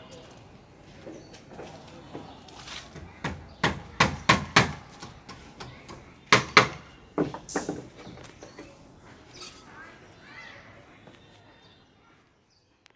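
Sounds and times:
hammer knocking: 3.0s - 5.1s.

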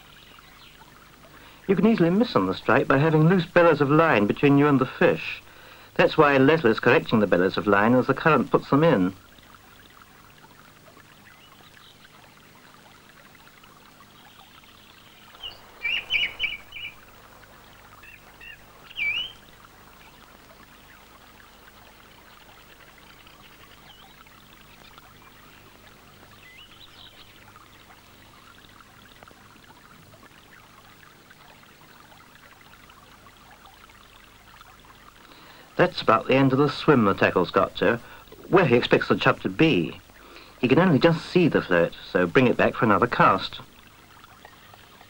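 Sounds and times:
river water flowing: 0.0s - 45.0s
bird chirps: 14.4s - 17.2s, 18.0s - 20.2s.

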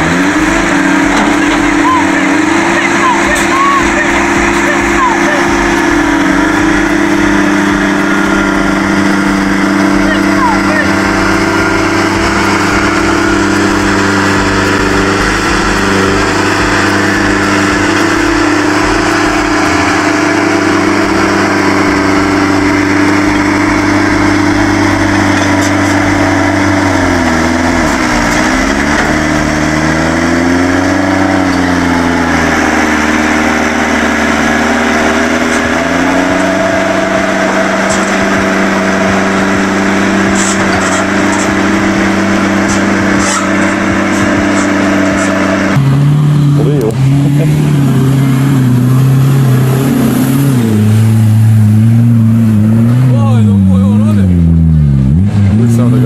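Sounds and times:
diesel engines running: 0.0s - 56.0s.

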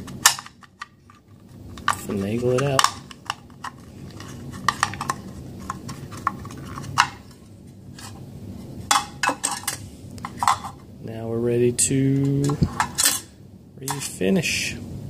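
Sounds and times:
metal magazines clicking and clinking: 0.0s - 1.2s.

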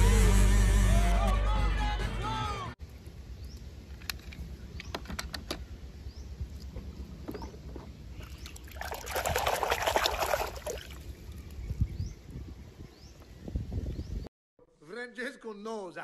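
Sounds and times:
water sloshing and splashing: 6.6s - 11.2s.

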